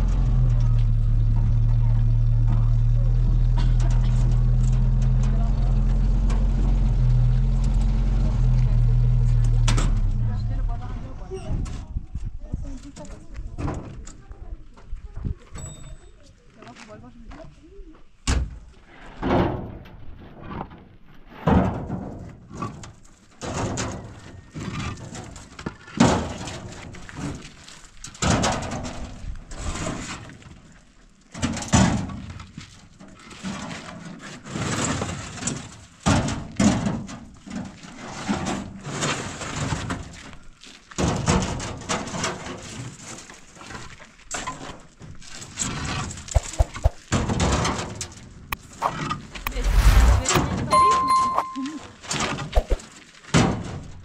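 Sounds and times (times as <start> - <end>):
knocks and scrapes of hard objects: 46.3 - 47.1, 52.5 - 52.8.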